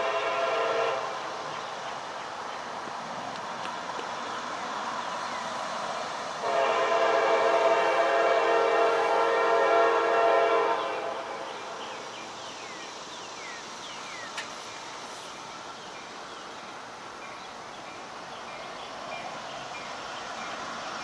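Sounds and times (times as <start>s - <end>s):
locomotive air horn chord: 0.0s - 1.1s, 6.4s - 11.5s
single click: 14.3s - 14.6s.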